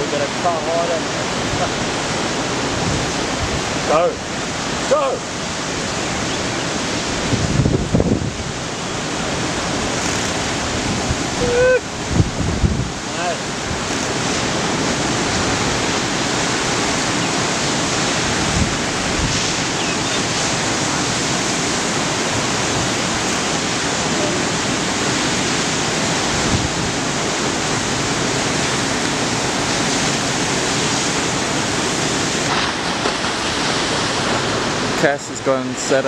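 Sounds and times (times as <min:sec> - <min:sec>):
ocean waves breaking: 0:00.0 - 0:36.0.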